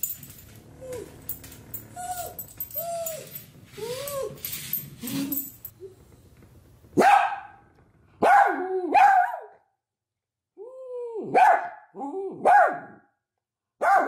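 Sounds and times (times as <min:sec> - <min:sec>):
dog crying: 0:01.9 - 0:04.4
dog barking: 0:07.0 - 0:07.6, 0:08.2 - 0:09.6, 0:11.3 - 0:13.1, 0:13.8 - 0:14.0.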